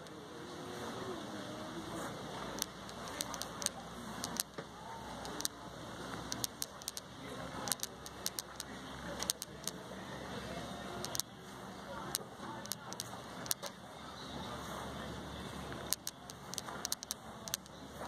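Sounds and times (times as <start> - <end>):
faint distant voices: 0.0 - 18.0
sharp clicks: 2.5 - 9.8, 11.0 - 11.3, 12.1 - 13.8, 15.8 - 17.8.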